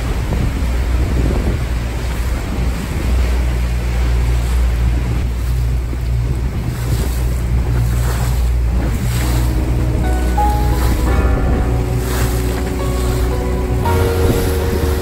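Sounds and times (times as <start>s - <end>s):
motorboat engine droning: 0.0s - 15.0s
water rushing and splashing: 0.0s - 15.0s
wind buffeting microphone: 0.0s - 15.0s
faint music: 9.2s - 15.0s.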